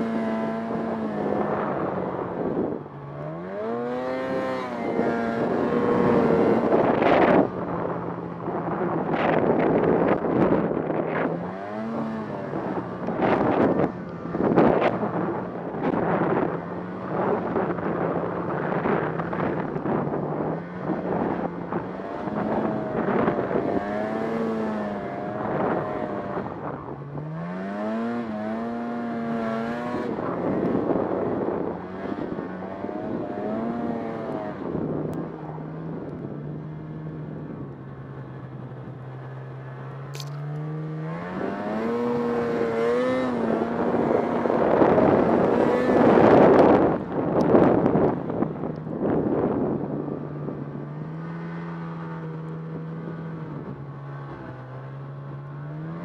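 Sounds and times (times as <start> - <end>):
snowmobile engine revving: 0.0 - 7.5, 8.6 - 35.0, 40.1 - 48.2
wind rushing over microphone: 0.0 - 56.0.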